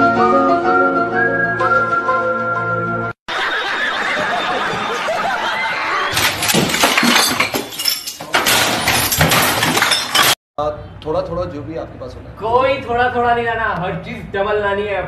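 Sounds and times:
flute music: 0.0 - 3.2
crashing and breaking: 6.1 - 10.4
glass shattering: 6.1 - 10.4
things clattering: 6.1 - 10.4.

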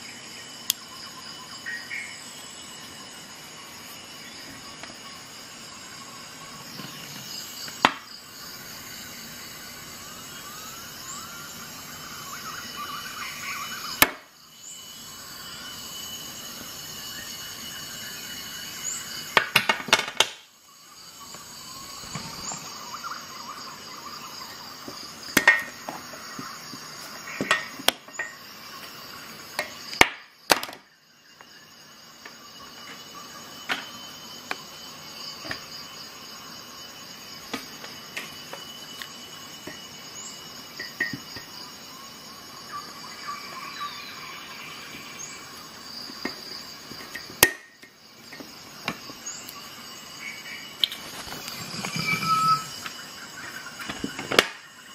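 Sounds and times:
faint steady tones: 0.0 - 19.7
background hiss: 0.0 - 54.9.

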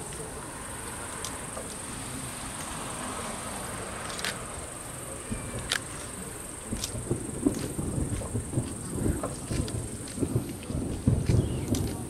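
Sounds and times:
night insects chirping: 0.0 - 12.0
low distant thuds: 3.7 - 12.0.

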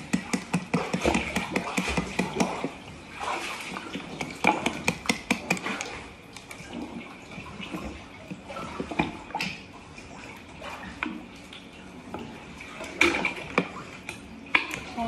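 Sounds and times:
plastic items clicking and knocking: 0.0 - 2.6, 4.1 - 6.6
water moving in a pool: 0.0 - 15.0.

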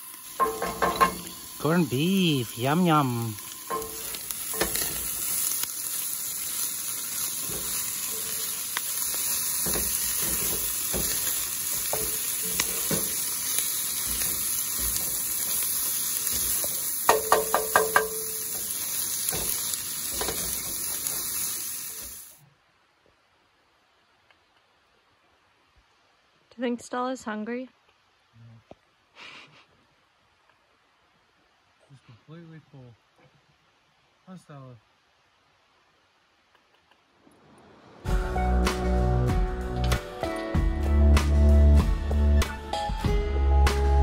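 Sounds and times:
meat and onions sizzling in a skillet: 0.0 - 22.4
wooden spatula scraping: 7.2 - 21.3.

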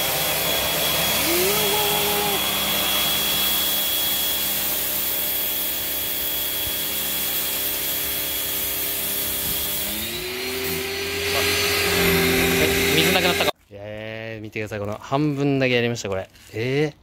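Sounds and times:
pressure washer motor hum: 0.0 - 13.5.

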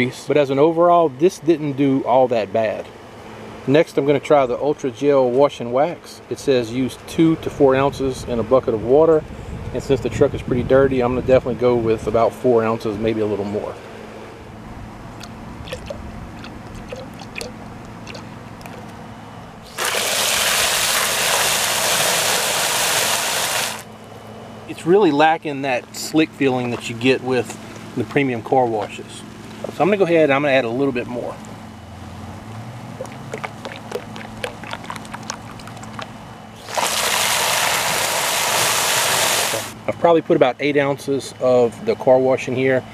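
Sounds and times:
faint drips: 15.2 - 18.9, 33.0 - 36.1
gel glugging from plastic bottle: 15.2 - 18.9, 19.7 - 22.7, 33.0 - 38.4
water jet hissing into bucket: 19.7 - 23.9, 36.6 - 39.8.

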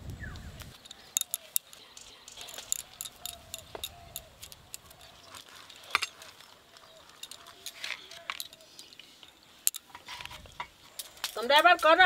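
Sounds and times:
bangles and fingers clicking: 0.7 - 10.0.

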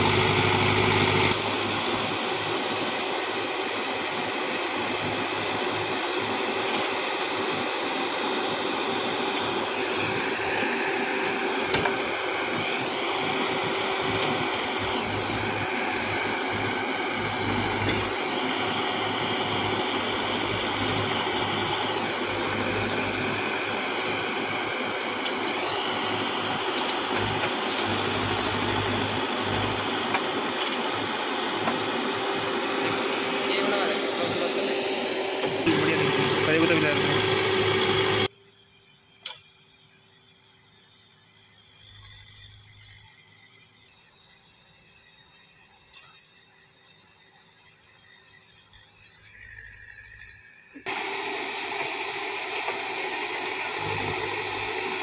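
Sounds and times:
backhoe diesel engine running: 0.0 - 38.3, 50.9 - 55.0
hydraulic whine: 0.0 - 55.0.

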